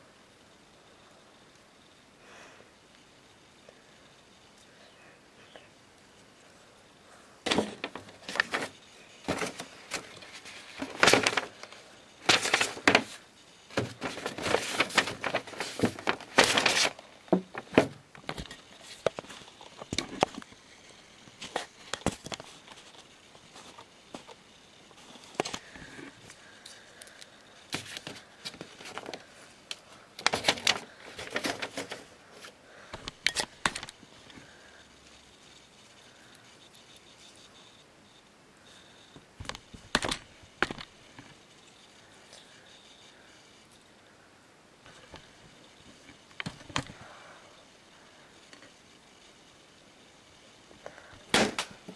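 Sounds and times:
paper rustling and crinkling: 7.5s - 20.6s, 21.3s - 34.8s.

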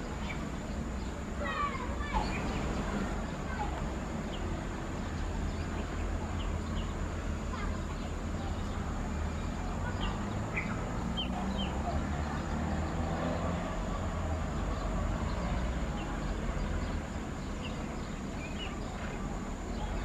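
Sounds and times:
bird chirps: 9.8s - 12.5s.

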